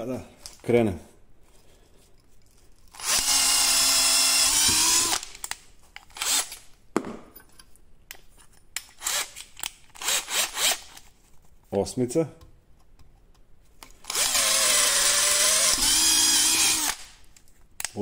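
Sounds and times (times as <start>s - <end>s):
cordless drill motor whine: 3.0s - 5.2s, 14.1s - 17.0s.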